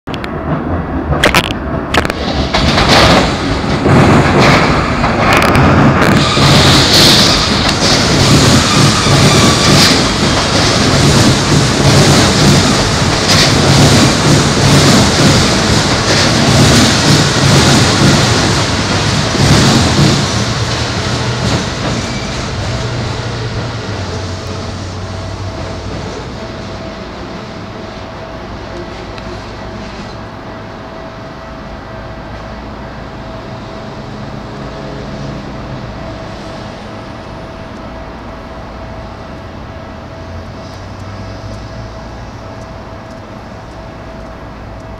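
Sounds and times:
train wheels rumbling on rail: 0.1s - 44.9s
sharp rail clacks: 0.2s - 22.2s.

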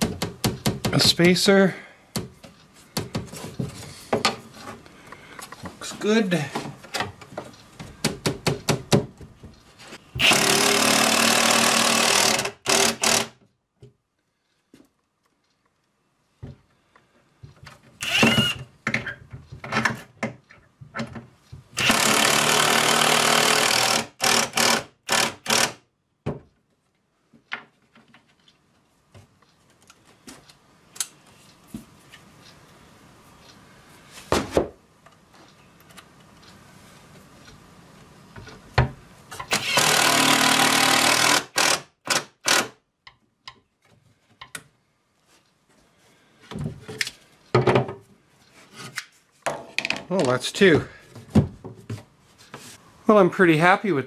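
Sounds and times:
cordless drill driving screws: 10.2s - 13.4s, 18.0s - 18.6s, 21.8s - 25.8s, 39.5s - 42.8s.

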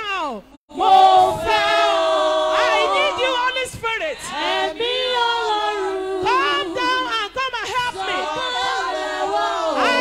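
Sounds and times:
woman singing into a microphone: 2.6s - 9.0s, 9.7s - 10.0s.

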